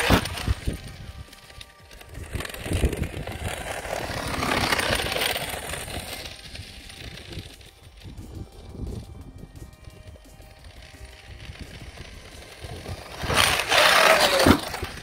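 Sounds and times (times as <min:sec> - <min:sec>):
gears rattling and grinding: 0:00.0 - 0:09.3, 0:10.4 - 0:15.0
electric toy truck motor running: 0:00.0 - 0:15.0.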